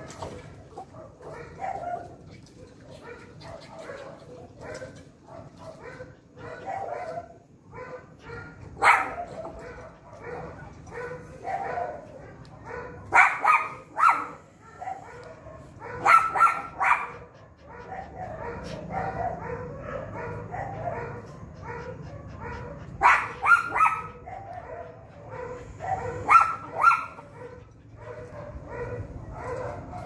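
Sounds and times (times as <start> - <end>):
dog barking: 0.0 - 30.0.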